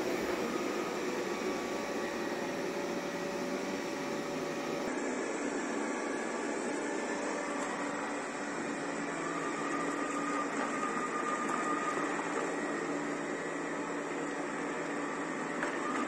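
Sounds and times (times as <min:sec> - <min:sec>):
robot vacuum whirring hum: 0:00.0 - 0:16.0.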